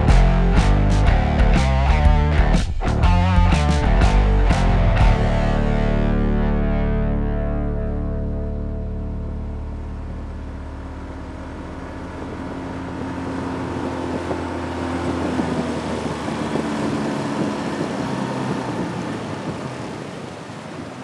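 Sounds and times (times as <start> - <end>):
outboard motor running: 0.0 - 21.0
water rushing along hull: 7.6 - 21.0.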